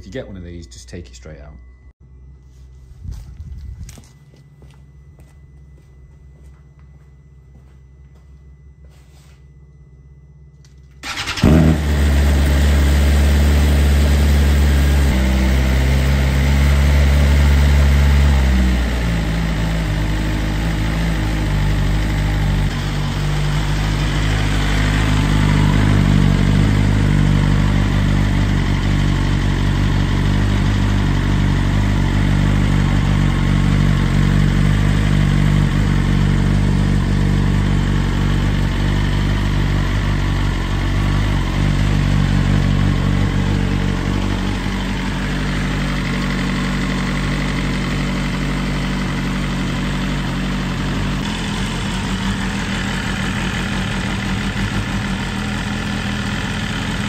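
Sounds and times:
motorcycle engine idling: 10.7s - 57.0s.

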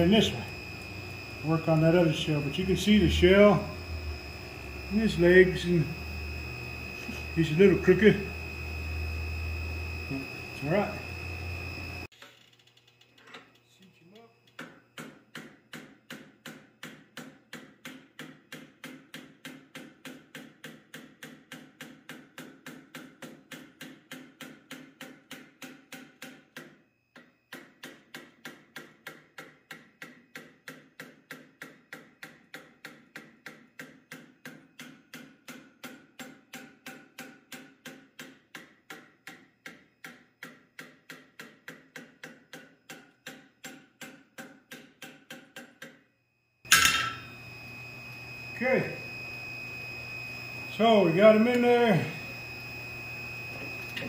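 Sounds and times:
loud metallic clank: 46.7s - 47.3s
hammer striking hot steel: 46.7s - 47.4s.

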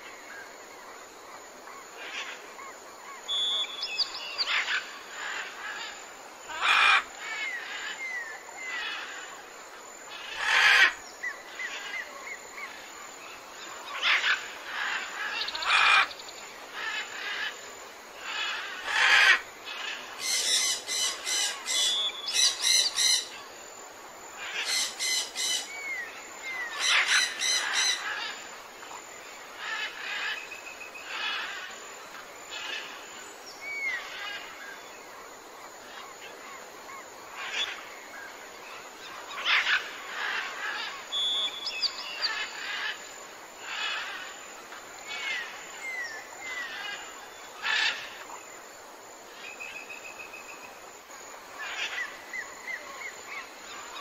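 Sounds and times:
rapid repeated bird calls: 10.1s - 23.6s, 24.3s - 48.6s, 51.4s - 54.0s
birds chirping: 24.4s - 28.5s.

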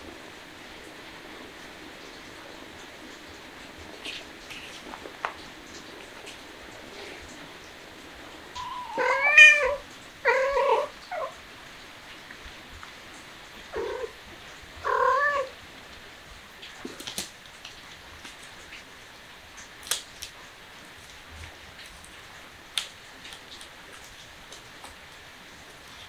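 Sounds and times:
cat meowing: 8.5s - 11.4s, 13.7s - 14.2s, 14.8s - 15.6s.

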